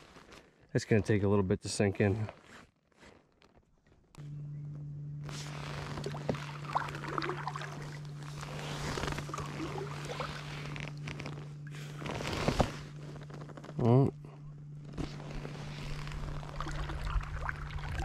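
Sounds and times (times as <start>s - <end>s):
steady low hum: 3.8s - 18.0s
paddle splashing in water: 6.0s - 10.8s, 16.2s - 18.0s.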